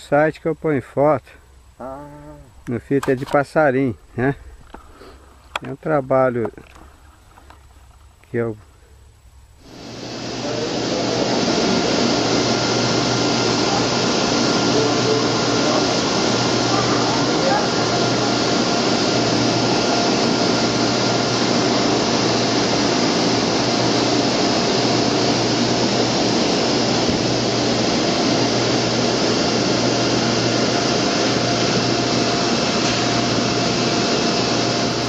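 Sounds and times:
machine rushing hiss: 0:09.6 - 0:35.0.

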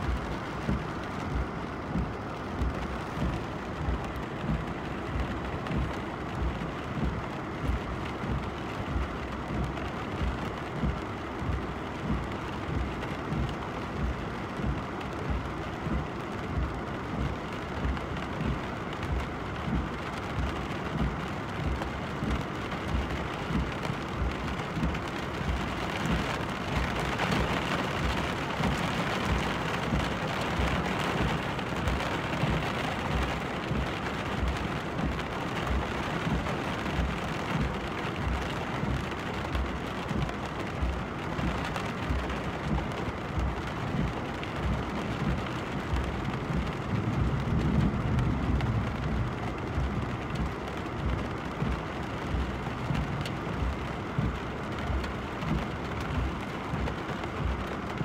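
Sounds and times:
rain falling on a car: 0:00.0 - 0:58.0
low rumbling: 0:39.6 - 0:58.0.

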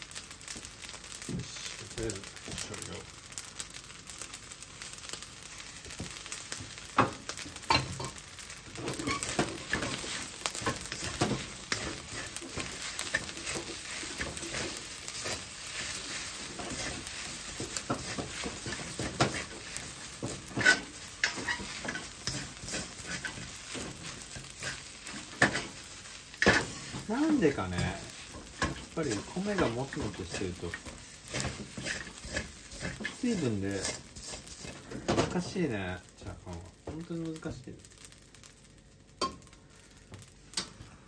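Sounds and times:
rice sizzling in a wok: 0:00.0 - 0:41.0
spatula knocking and scraping pan: 0:08.8 - 0:35.5.

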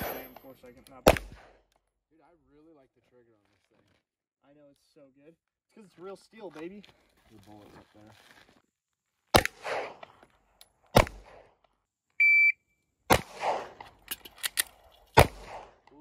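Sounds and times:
pistol shots: 0:01.0 - 0:01.6, 0:09.3 - 0:10.1, 0:10.9 - 0:11.5, 0:13.1 - 0:13.9, 0:15.2 - 0:15.9
shot timer high beep: 0:12.2 - 0:12.6.

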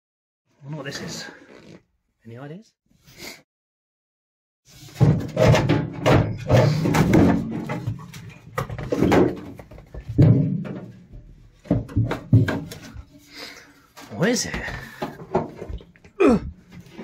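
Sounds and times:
metal tank clunks and knocks: 0:05.0 - 0:13.1.

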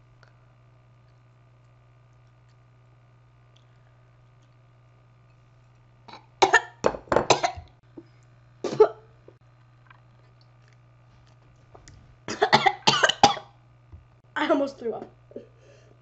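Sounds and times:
boy coughing and gagging: 0:06.1 - 0:07.6, 0:08.7 - 0:09.0, 0:12.3 - 0:13.4
boy talking: 0:14.4 - 0:15.2.

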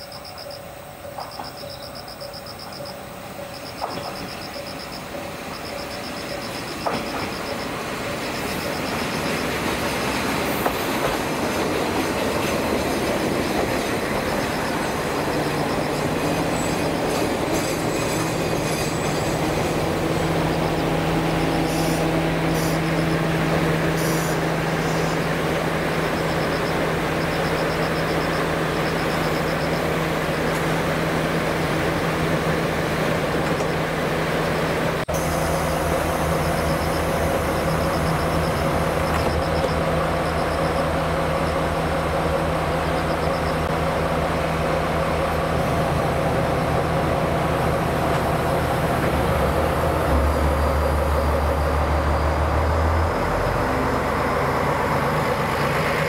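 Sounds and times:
insects chirping: 0:00.0 - 0:30.8, 0:36.2 - 0:41.8, 0:42.5 - 0:43.7
train pulling into station: 0:00.0 - 0:56.0
brake squeals: 0:23.9 - 0:30.7.

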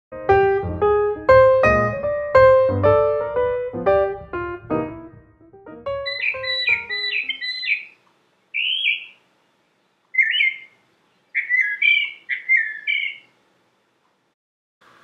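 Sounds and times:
piano notes: 0:00.1 - 0:07.4
mockingbird singing: 0:05.9 - 0:13.4.

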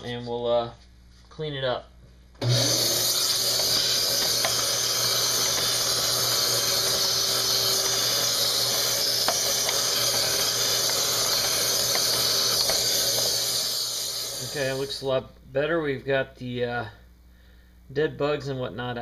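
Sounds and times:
vacuum cleaner running: 0:02.4 - 0:15.0.

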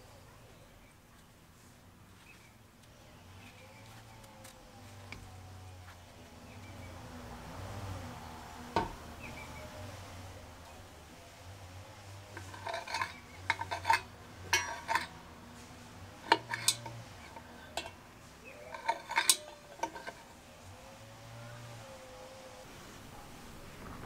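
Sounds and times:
metal clicks and clinks of lantern burner: 0:12.4 - 0:15.2, 0:16.2 - 0:18.0, 0:18.6 - 0:20.3.

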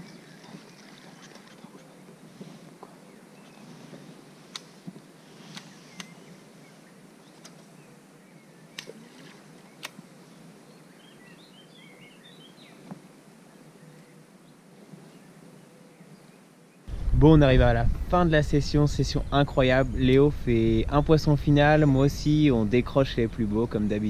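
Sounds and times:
birds chirping: 0:00.0 - 0:24.0
faint pond-side ambience: 0:00.0 - 0:24.0.

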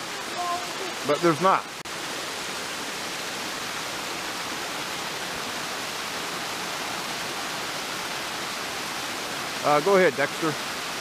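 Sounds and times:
small waterfall rushing: 0:00.0 - 0:11.0.

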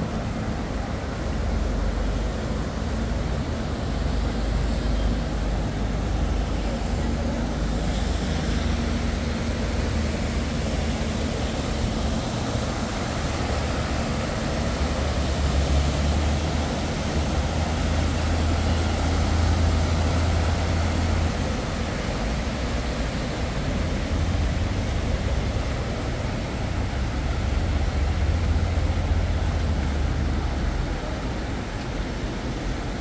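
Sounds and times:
moving vehicle rumble: 0:00.0 - 0:33.0.

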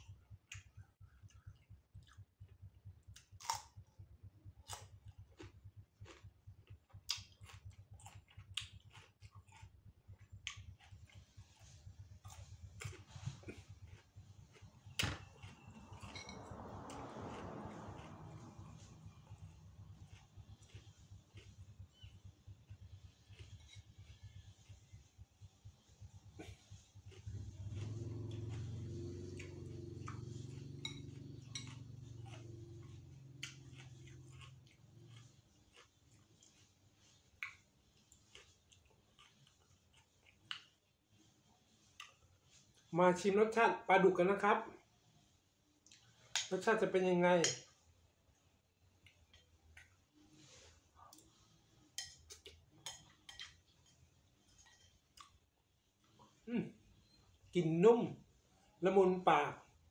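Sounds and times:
chewing crunchy cucumber: 0:00.0 - 0:42.9
low steady hum: 0:00.0 - 0:42.9
metal spoon clinking on dishes: 0:16.0 - 0:16.5, 0:30.8 - 0:31.9.

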